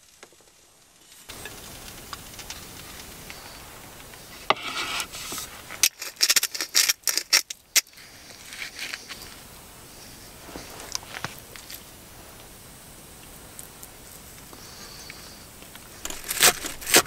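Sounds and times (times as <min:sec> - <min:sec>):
spice grinder crunching: 0:01.3 - 0:09.5, 0:15.0 - 0:17.0
scraping on cutting board: 0:04.3 - 0:05.6.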